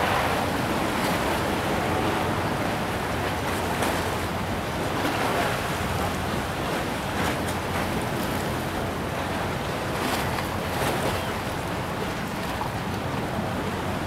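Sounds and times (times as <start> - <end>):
wind buffeting microphone: 0.0 - 9.2
choppy water: 0.0 - 14.0.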